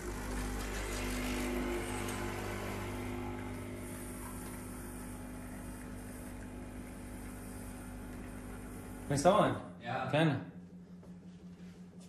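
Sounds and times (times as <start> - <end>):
espresso machine humming: 0.0 - 9.6.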